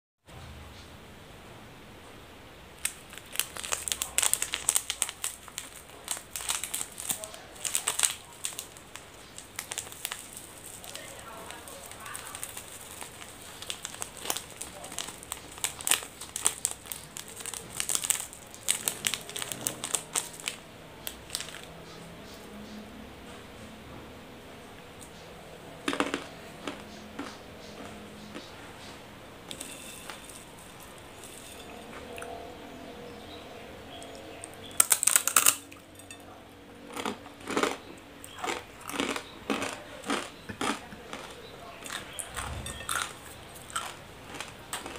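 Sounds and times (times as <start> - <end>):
biting dry noodles crunch: 2.8 - 21.7, 25.8 - 28.5, 34.1 - 36.1, 36.8 - 44.9
plastic sachet crinkling: 2.8 - 21.7, 29.5 - 31.9, 34.7 - 36.2
crunchy chewing: 2.8 - 22.8, 25.0 - 44.9.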